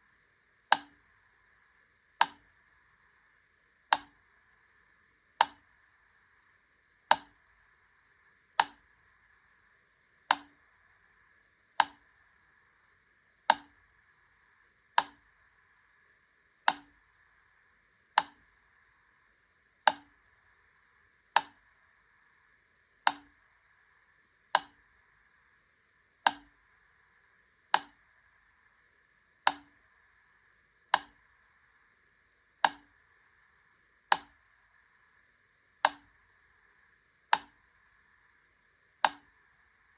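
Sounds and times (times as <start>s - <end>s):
faint steady hiss: 0.0s - 39.9s
metronome ticking: 5.4s - 5.6s, 32.6s - 32.9s.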